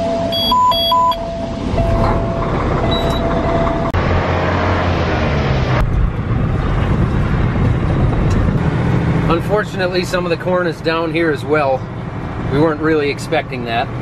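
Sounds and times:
dash warning tone: 0:00.0 - 0:04.0
diesel truck engine running: 0:00.0 - 0:14.0.

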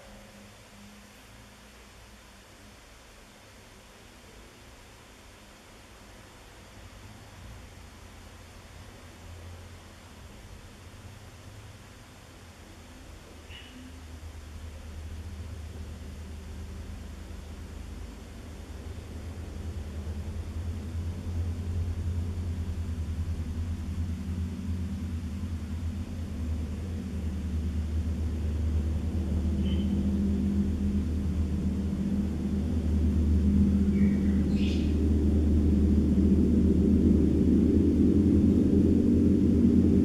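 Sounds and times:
gong deep hum: 0:19.1 - 0:40.0.

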